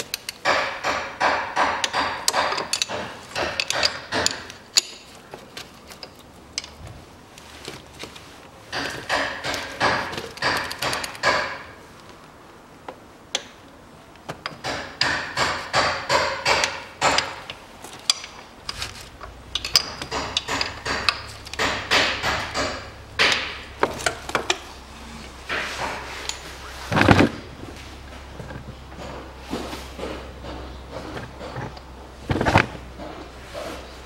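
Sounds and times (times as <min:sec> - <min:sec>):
wrench clicking on metal: 0:01.8 - 0:05.0, 0:14.5 - 0:24.6.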